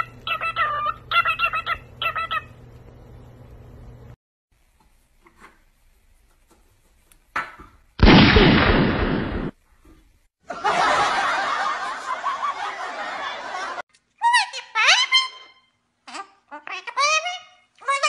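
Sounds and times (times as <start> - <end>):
people laughing: 10.5 - 13.8.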